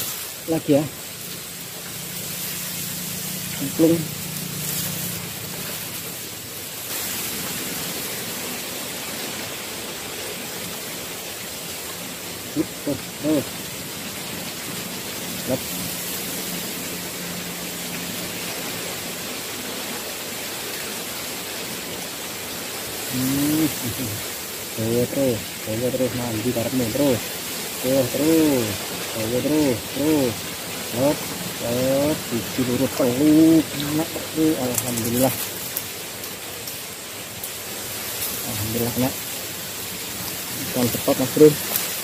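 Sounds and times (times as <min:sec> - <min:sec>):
outdoor background hiss: 0:00.0 - 0:42.0
short low-pitched calls: 0:12.4 - 0:13.8.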